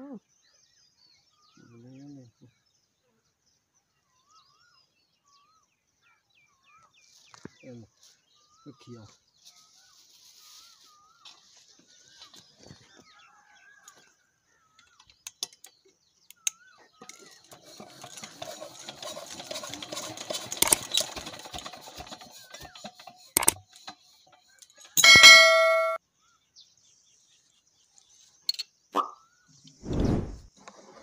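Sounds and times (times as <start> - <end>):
hand tools scraping: 17.0 - 26.0
sharp metal click: 20.6 - 20.9, 23.4 - 23.9
metal clink: 24.8 - 26.0
metallic ding ringing: 25.0 - 26.0.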